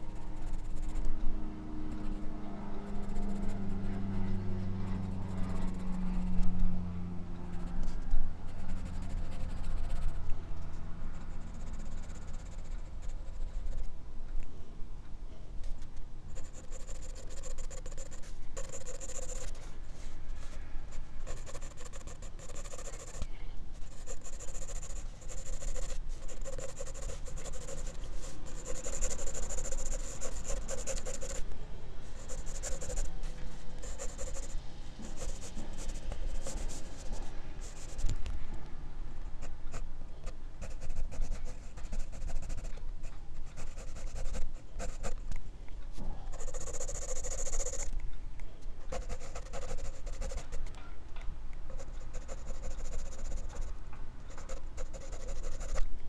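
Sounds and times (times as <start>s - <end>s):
pencil scratching on paper: 0.3s - 1.1s, 2.9s - 3.9s, 5.0s - 6.4s, 8.5s - 10.2s, 11.2s - 13.8s, 16.4s - 19.6s, 21.2s - 31.4s, 32.2s - 33.1s, 33.7s - 38.0s, 40.6s - 42.7s, 43.4s - 45.2s, 46.3s - 47.9s, 48.9s - 50.6s, 51.7s - 53.7s, 54.3s - 55.8s.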